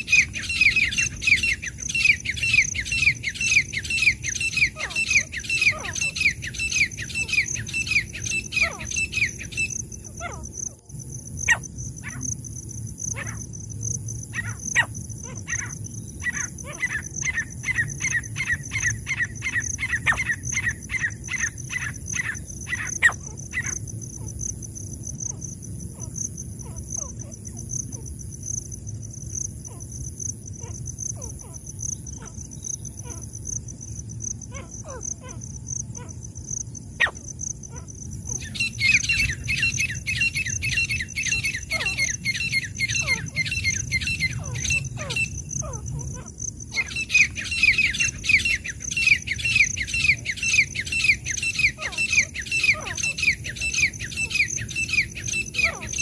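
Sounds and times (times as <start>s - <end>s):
bird calling repeated notes: 38.3s - 46.1s, 46.7s - 56.0s.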